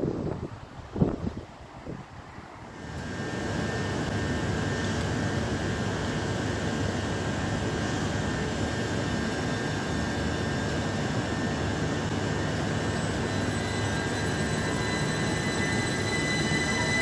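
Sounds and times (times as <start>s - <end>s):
electric train rumbling: 0.0s - 17.0s
high whining tones: 8.8s - 17.0s.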